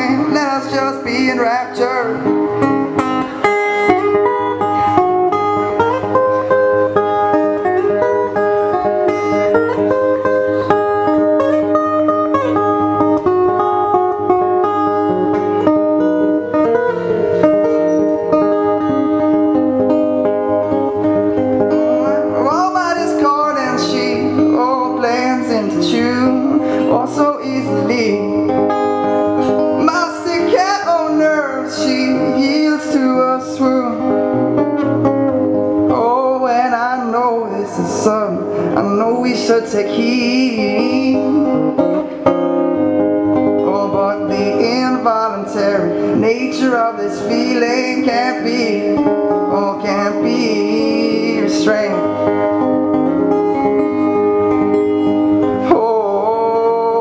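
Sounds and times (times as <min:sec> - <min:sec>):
man singing wordlessly: 0:00.0 - 0:02.6, 0:21.8 - 0:28.8, 0:29.4 - 0:34.6, 0:35.9 - 0:42.0, 0:43.6 - 0:52.6, 0:55.5 - 0:57.0
acoustic guitar playing: 0:00.0 - 0:57.0.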